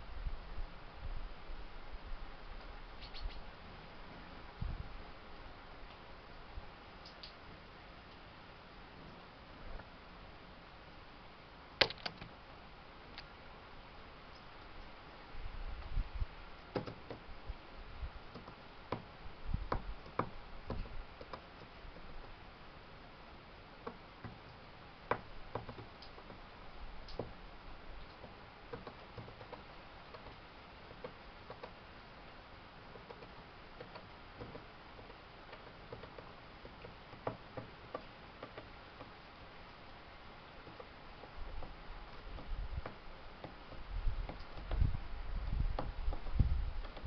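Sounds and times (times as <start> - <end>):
faint ticks and taps: 18.3 - 19.1, 23.8 - 26.4, 27.0 - 27.4, 28.0 - 31.8, 32.9 - 39.2, 40.6 - 47.0.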